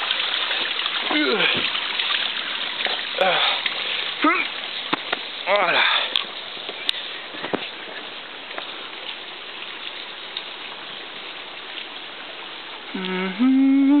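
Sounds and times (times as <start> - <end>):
running water: 0.0 - 14.0
person humming a tune: 12.9 - 14.0.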